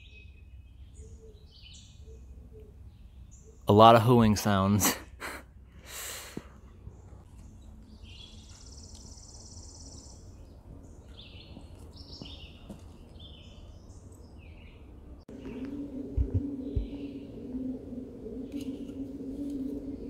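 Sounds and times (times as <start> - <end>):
songbirds chirping: 0.0 - 4.8, 6.4 - 20.0
pigeons cooing: 15.3 - 20.0.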